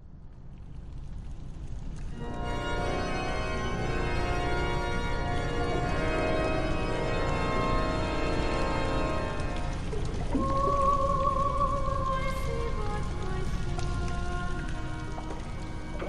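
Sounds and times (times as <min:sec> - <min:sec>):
organ chords: 0:02.2 - 0:09.8.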